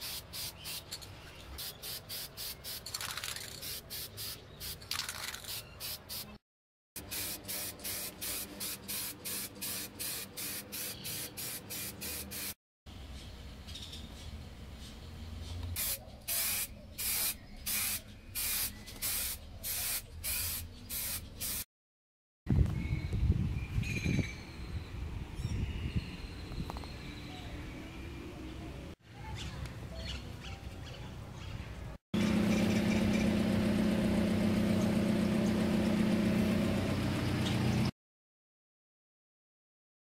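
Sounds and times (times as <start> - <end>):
spray paint can hissing: 0.0 - 0.9, 1.6 - 6.4, 7.0 - 12.6, 15.8 - 21.7.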